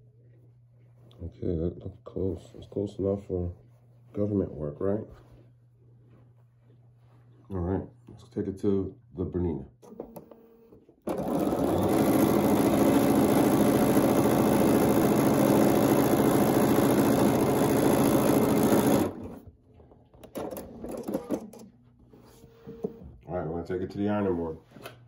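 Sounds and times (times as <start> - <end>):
sewing machine running: 11.0 - 19.5, 20.3 - 21.6.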